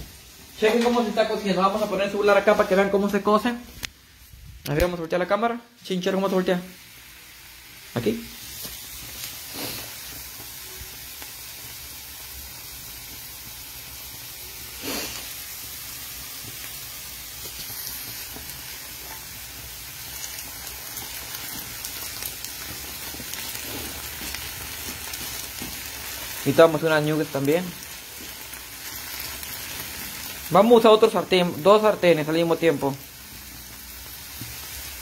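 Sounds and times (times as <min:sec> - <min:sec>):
potatoes sizzling in oil: 0:00.0 - 0:35.0
spatula stirring potatoes: 0:21.0 - 0:26.7.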